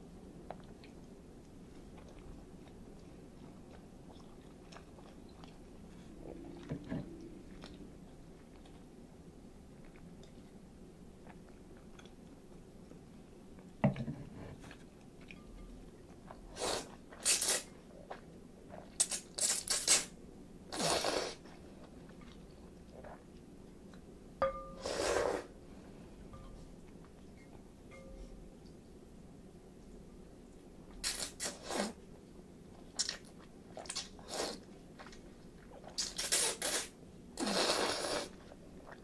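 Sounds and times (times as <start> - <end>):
noodles slurped: 20.7 - 21.4, 33.0 - 35.2, 35.8 - 39.0.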